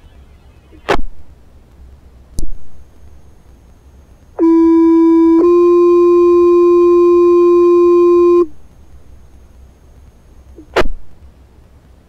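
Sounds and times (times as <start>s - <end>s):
two-tone pager tone over radio: 4.4s - 8.5s.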